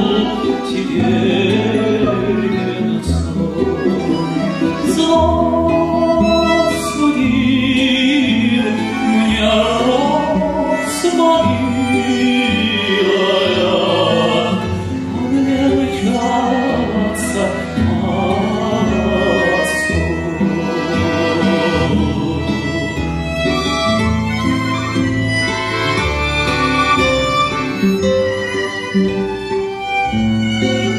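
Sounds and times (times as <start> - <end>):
man singing with vibrato: 0.0 - 24.0
instrumental accompaniment: 0.0 - 30.9.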